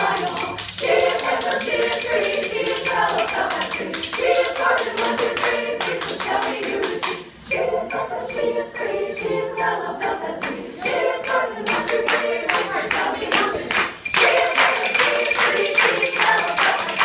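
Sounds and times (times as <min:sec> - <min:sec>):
hand claps: 0:00.0 - 0:07.2, 0:10.4 - 0:10.6, 0:11.3 - 0:17.0
women's chorus singing: 0:00.0 - 0:17.0.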